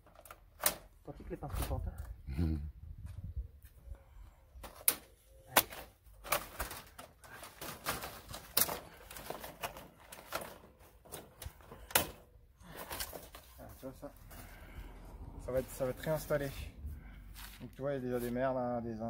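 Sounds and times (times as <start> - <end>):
plastic parts clicking and knocking: 4.6 - 13.4.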